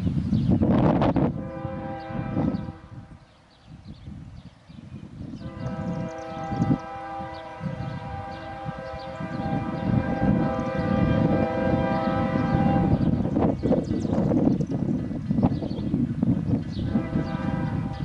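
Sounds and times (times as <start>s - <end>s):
low rumble of train: 0.0s - 18.0s
locomotive air horn blast: 1.4s - 3.1s, 5.4s - 13.2s, 16.8s - 18.0s.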